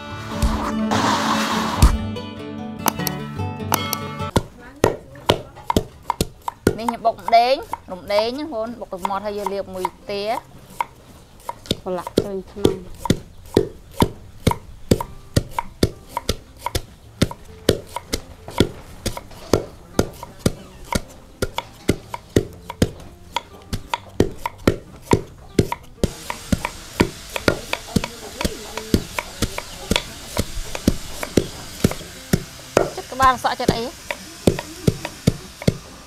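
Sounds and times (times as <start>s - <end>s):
knife chopping on cutting board: 2.8s - 3.1s, 3.7s - 35.9s.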